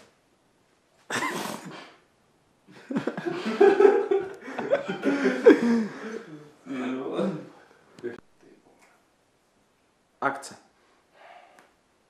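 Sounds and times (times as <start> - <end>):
man laughing: 2.7 - 6.5.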